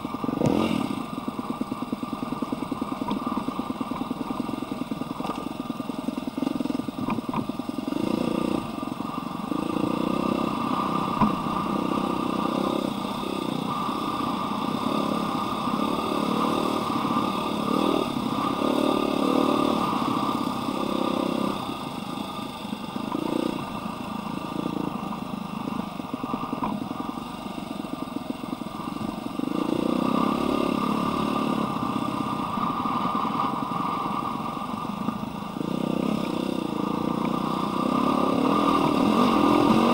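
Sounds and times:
dirt bike engine revving: 0.3 - 1.1, 7.9 - 8.7, 9.5 - 21.9, 29.3 - 32.4, 35.6 - 39.9.

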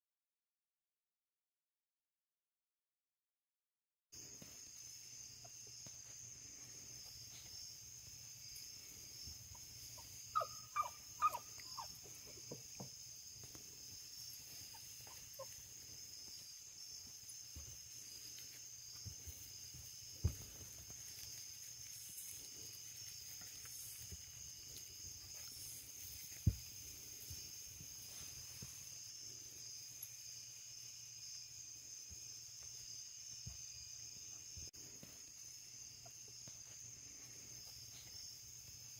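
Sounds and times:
puppy whimpering: 10.0 - 11.9
high-pitched hiss: 11.6 - 38.9.

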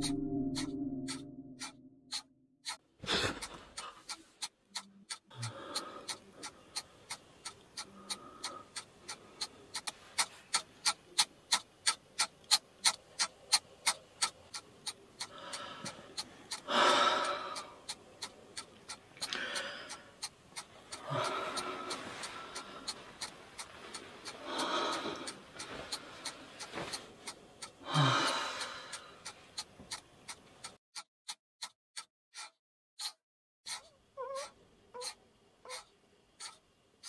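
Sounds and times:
clock ticking: 0.0 - 36.6
man breathing heavily and gasping: 15.3 - 17.8, 19.2 - 20.1, 20.9 - 23.0, 23.8 - 26.9, 27.8 - 29.2.

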